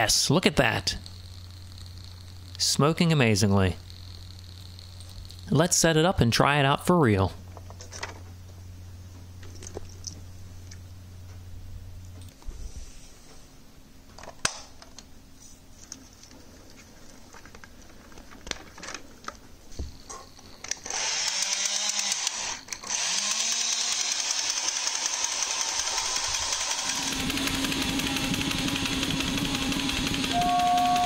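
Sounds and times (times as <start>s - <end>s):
toy train running: 20.6s - 31.0s
low steady tone: 30.3s - 31.0s.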